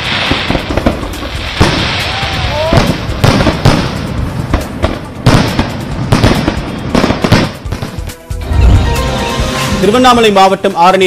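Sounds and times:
firework bangs: 0.0s - 8.2s
fireworks crackling: 0.0s - 11.0s.

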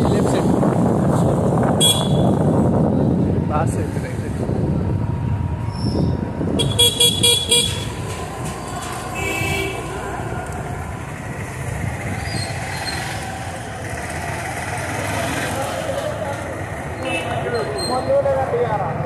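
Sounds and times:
road traffic rumble: 0.0s - 19.0s
car horns honking: 1.8s - 2.4s, 6.6s - 8.0s, 9.1s - 9.9s.

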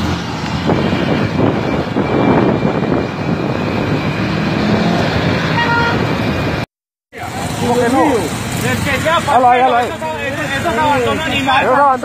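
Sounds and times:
road and wind noise: 0.0s - 12.0s
horn toot: 5.3s - 6.3s.

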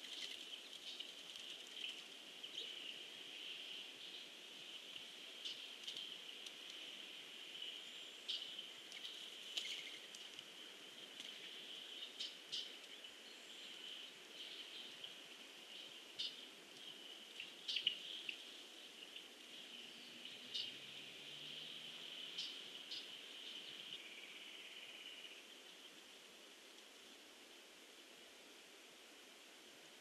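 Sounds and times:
bird chirps: 19.8s - 20.9s, 22.3s - 25.5s.

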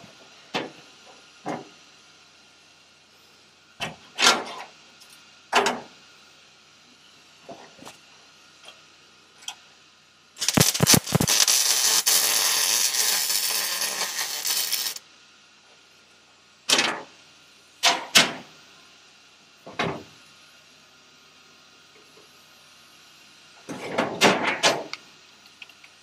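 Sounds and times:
welder arc crackling hiss: 0.0s - 5.3s, 5.9s - 15.1s.

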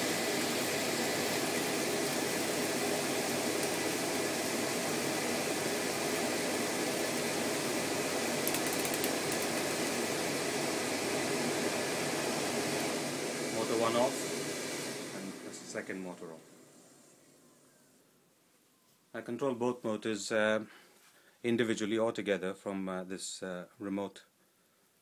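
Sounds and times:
dust extractor running: 0.0s - 16.2s.

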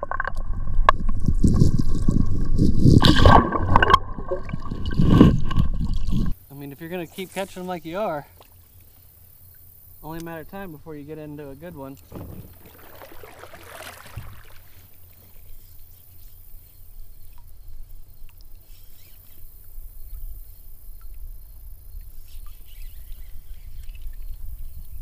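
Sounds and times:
river low rumble: 0.0s - 18.5s
faint ticks: 8.3s - 10.4s, 17.2s - 22.7s
rushing water: 11.3s - 15.4s.

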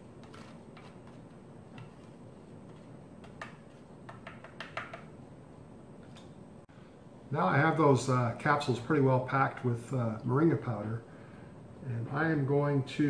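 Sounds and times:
card scraping on plastic tray: 0.2s - 2.1s.

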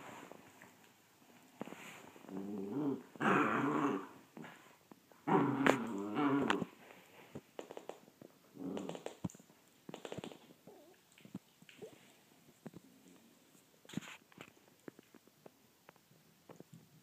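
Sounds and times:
puppy play-growling: 2.2s - 6.8s, 8.5s - 9.2s.

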